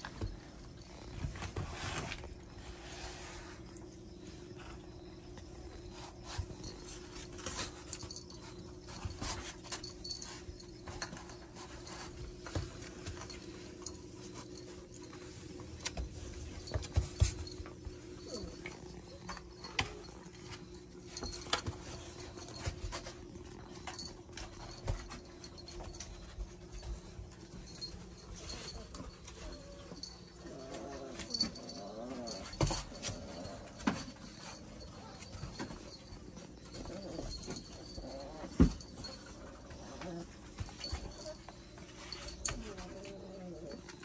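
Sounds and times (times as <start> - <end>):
puppies scuffling and knocking: 0.0 - 3.5, 5.8 - 44.0
collar tags jingling: 4.0 - 44.0.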